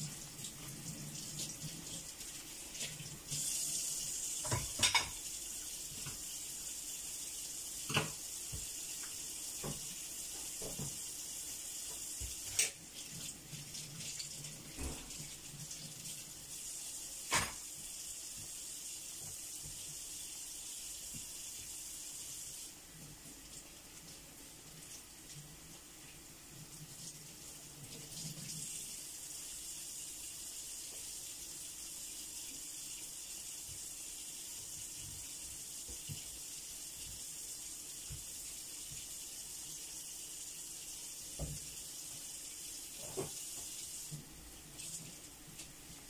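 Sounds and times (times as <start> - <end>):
kitchen tap running: 0.0 - 46.0
dishes and pans clinking: 4.4 - 5.2, 17.3 - 17.6.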